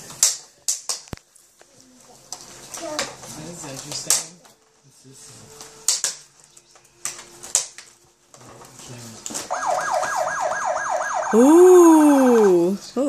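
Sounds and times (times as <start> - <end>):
cardboard packaging clicks and rustles: 0.0 - 10.2
toy electronic siren yelping: 9.5 - 12.8.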